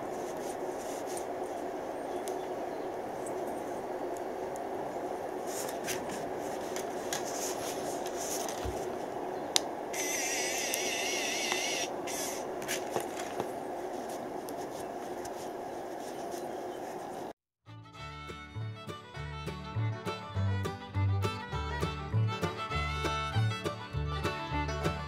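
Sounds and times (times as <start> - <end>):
warbling motor whine: 9.9 - 12.5
pen motor humming: 10.0 - 12.5.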